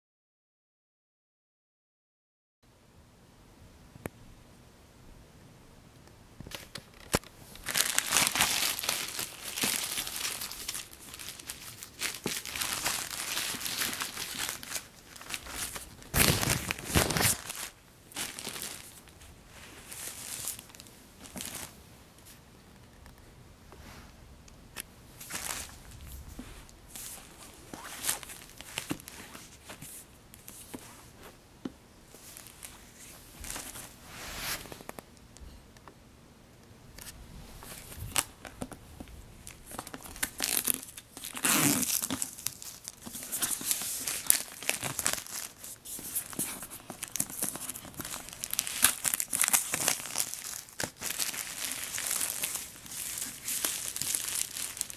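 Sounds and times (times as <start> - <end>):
plastic bag crinkling: 6.7 - 21.8, 25.2 - 30.6, 39.4 - 54.9.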